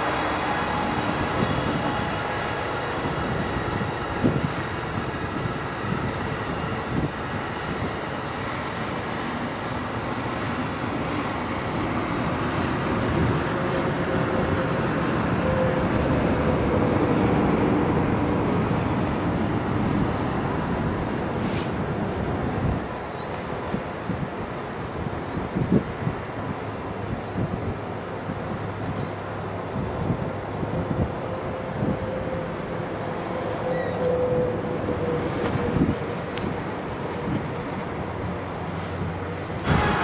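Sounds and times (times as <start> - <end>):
train wheels rumbling on track: 0.0 - 40.0.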